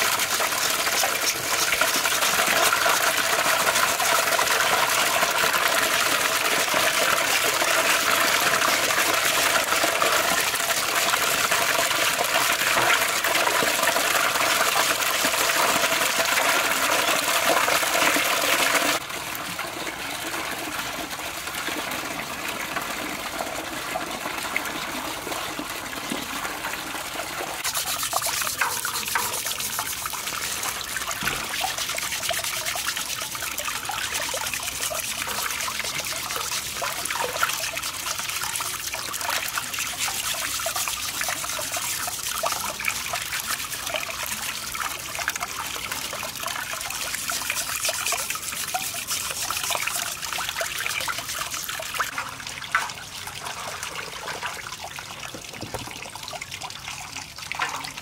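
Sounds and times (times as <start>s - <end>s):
water splashing while scrubbing: 0.0s - 19.0s, 27.6s - 43.9s, 46.3s - 56.0s
tap water running into basin: 0.0s - 58.0s.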